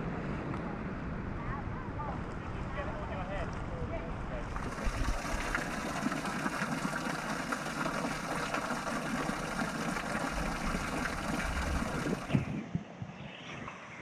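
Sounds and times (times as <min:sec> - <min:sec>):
water splashing off rock: 0:04.5 - 0:12.5.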